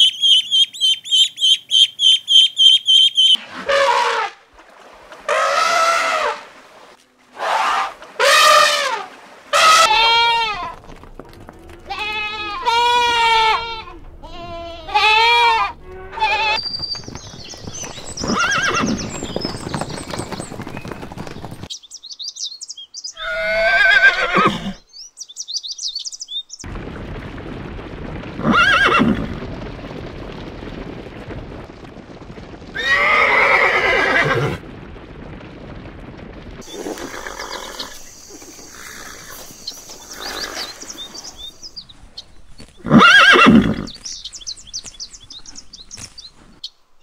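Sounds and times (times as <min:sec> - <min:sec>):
horses neighing: 0:05.3 - 0:06.4, 0:11.5 - 0:21.7, 0:23.2 - 0:24.8, 0:28.4 - 0:29.3, 0:32.7 - 0:34.6, 0:36.6 - 0:41.4, 0:42.8 - 0:44.0.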